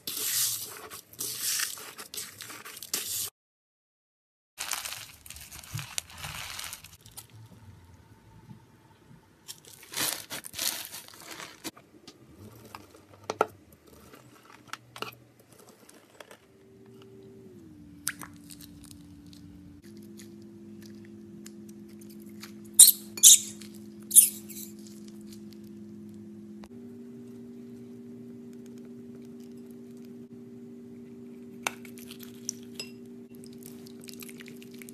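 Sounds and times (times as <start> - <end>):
slime crunching and crackling: 4.6 - 7.4, 9.5 - 11.7
steady low hum: 16.4 - 34.9.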